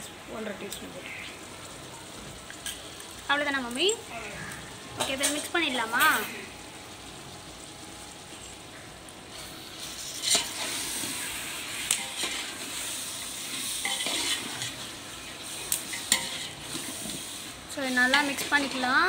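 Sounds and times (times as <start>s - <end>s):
vegetables sizzling in oil: 0.0s - 19.0s
ladle stirring and scraping: 9.7s - 18.8s.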